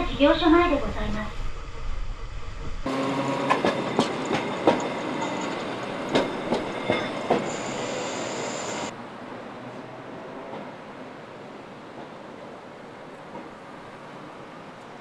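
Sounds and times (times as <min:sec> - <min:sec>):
streetcar wheels clacking on rails: 0:02.5 - 0:08.0
high wheel squeal: 0:02.9 - 0:08.9.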